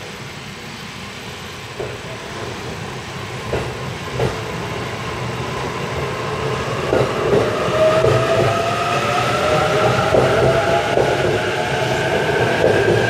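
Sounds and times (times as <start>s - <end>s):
train wheels clacking over rail joints: 1.8s - 2.8s, 3.4s - 4.6s, 6.9s - 8.6s, 9.8s - 13.0s
electric train motors whining: 2.3s - 13.0s.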